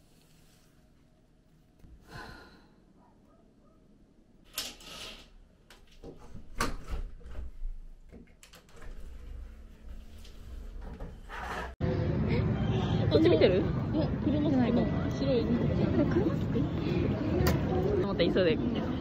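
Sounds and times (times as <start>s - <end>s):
scraping rustles: 8.7s - 11.8s.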